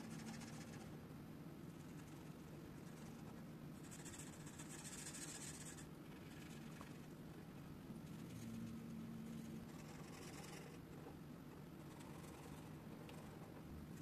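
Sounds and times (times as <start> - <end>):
marker rubbing on paper: 3.8 - 5.8.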